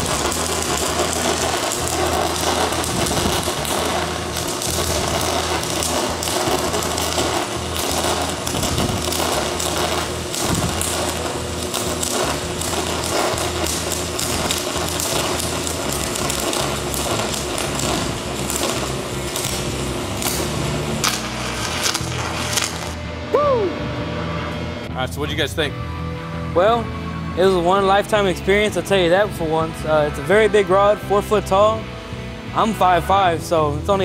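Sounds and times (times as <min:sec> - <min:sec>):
welding arc crackling and hissing: 0:00.0 - 0:23.7.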